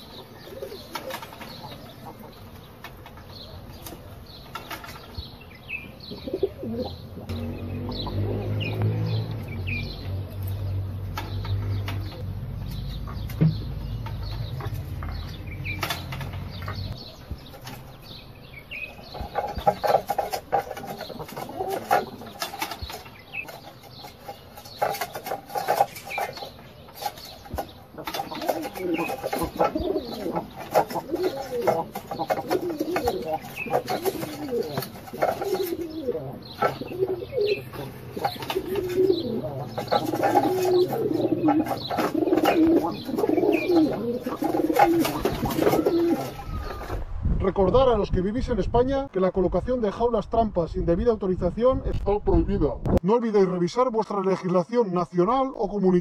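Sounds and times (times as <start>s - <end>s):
small birds chirping: 0.0s - 52.8s
pigeons flapping wings: 19.2s - 37.5s, 38.1s - 47.0s.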